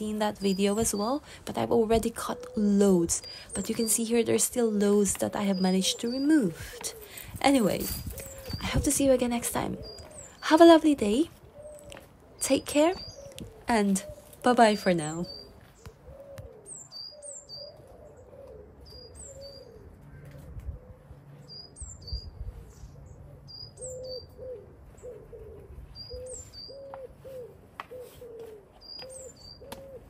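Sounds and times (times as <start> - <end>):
pigeon cooing: 5.8 - 10.4, 15.0 - 21.5, 22.3 - 30.0.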